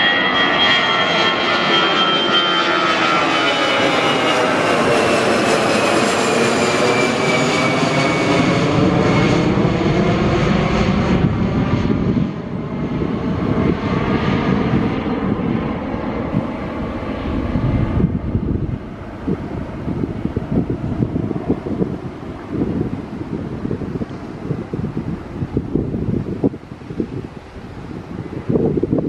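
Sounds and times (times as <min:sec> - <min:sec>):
high engine whine: 0:00.0 - 0:29.0
jet engines roaring overhead: 0:00.0 - 0:29.0.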